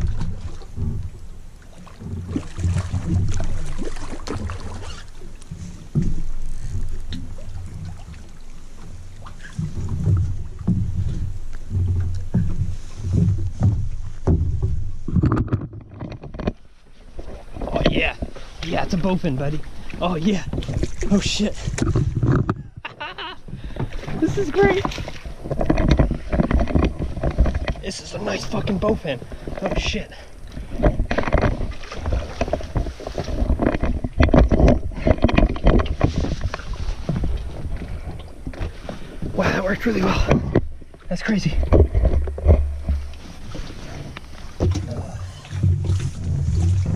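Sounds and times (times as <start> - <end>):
water splashing: 0.0 - 46.9
fish splashing in water: 1.7 - 5.6
dull thumps: 9.2 - 16.6, 17.2 - 46.9
knocks on wooden dock: 9.6 - 16.6.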